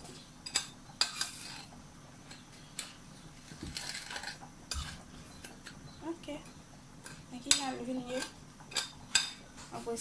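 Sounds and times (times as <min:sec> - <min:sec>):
spoon scraping: 0:00.5 - 0:02.9, 0:03.7 - 0:05.0.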